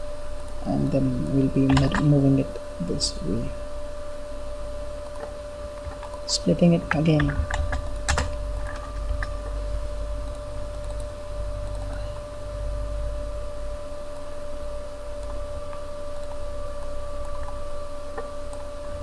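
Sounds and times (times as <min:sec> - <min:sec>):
electrical hum with hiss: 0:00.0 - 0:19.0
computer mouse clicks: 0:10.3 - 0:12.0.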